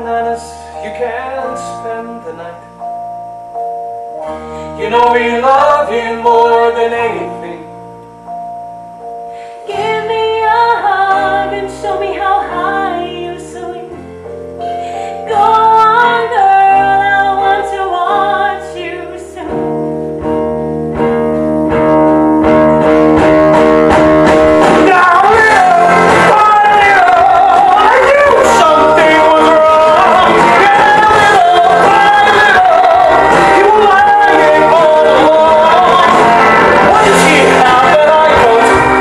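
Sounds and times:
live rock band with singer: 9.3 - 39.0.

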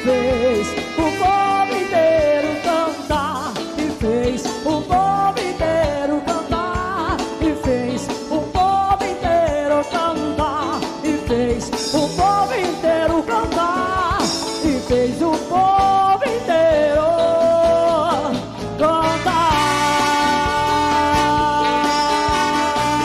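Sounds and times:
big band playing live: 0.0 - 23.0.

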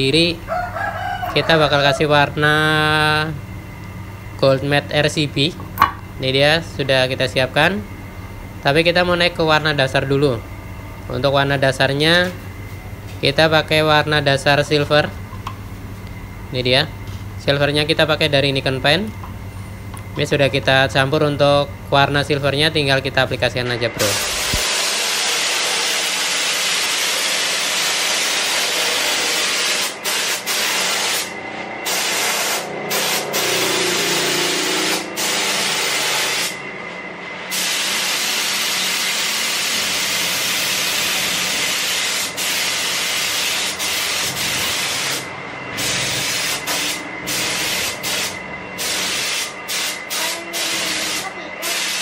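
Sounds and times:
spray gun hissing: 24.0 - 36.6, 37.5 - 52.0.

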